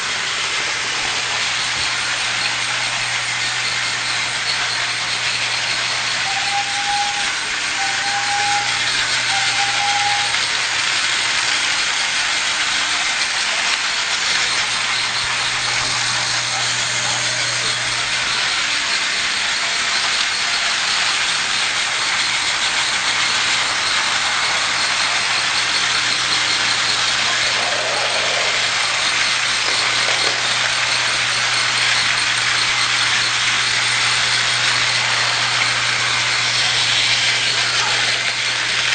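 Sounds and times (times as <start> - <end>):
toy train mechanical hiss: 0.0 - 38.9.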